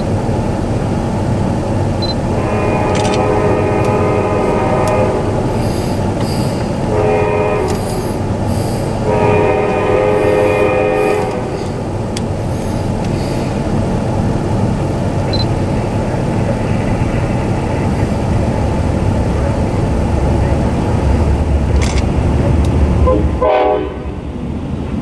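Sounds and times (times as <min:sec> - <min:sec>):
low rumble: 0:00.0 - 0:25.0
locomotive air horn: 0:02.2 - 0:11.8, 0:23.0 - 0:24.2.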